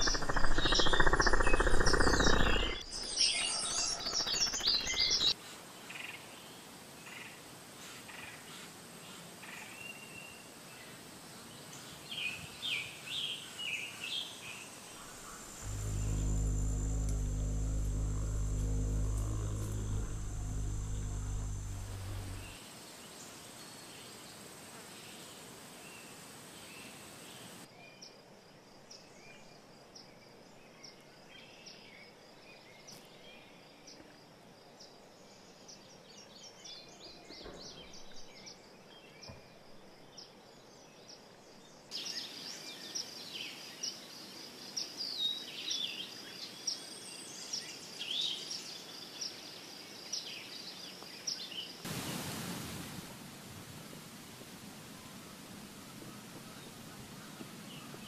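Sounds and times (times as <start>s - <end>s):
birds chirping: 0.0s - 5.3s, 15.0s - 22.6s
insects trilling: 0.0s - 5.3s, 15.0s - 22.6s
loud low steady buzz: 15.0s - 22.6s.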